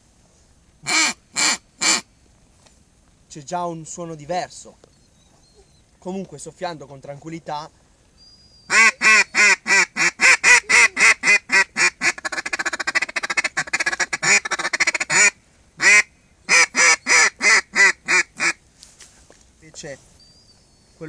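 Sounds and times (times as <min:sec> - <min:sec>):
duck call quacking: 0:00.8 - 0:02.1, 0:08.7 - 0:18.6.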